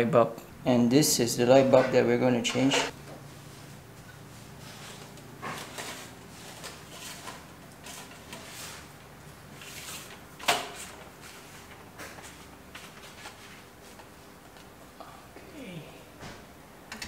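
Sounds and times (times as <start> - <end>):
extension pole scraping and rattling: 4.4 - 8.9, 9.5 - 13.6.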